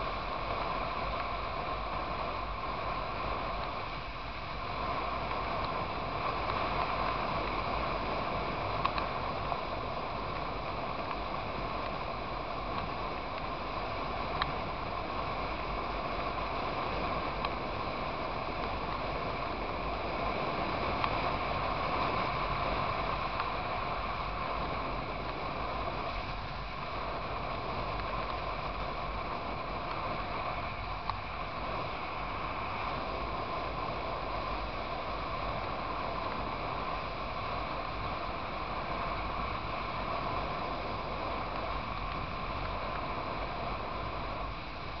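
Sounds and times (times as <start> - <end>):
motorcycle engine and tyre drone: 0.0 - 45.0
wind rush: 0.0 - 45.0
faint ticks: 5.2 - 7.3, 8.6 - 9.4, 10.2 - 17.9, 18.5 - 19.5, 20.7 - 22.5, 27.8 - 31.4, 39.1 - 43.4.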